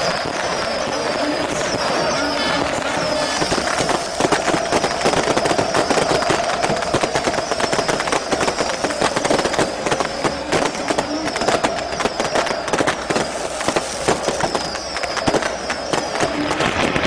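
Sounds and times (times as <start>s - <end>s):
burning flares noise: 0.0s - 17.0s
firecrackers banging: 0.0s - 17.0s
high whistling tone: 0.0s - 17.0s.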